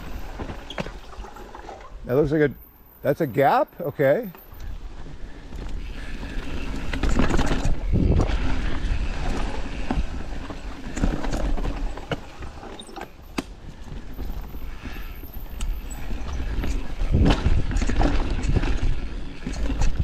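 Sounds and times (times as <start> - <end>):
bike rattling: 0.0 - 3.4, 4.0 - 20.0
bike tyres rumbling over ground: 4.9 - 20.0.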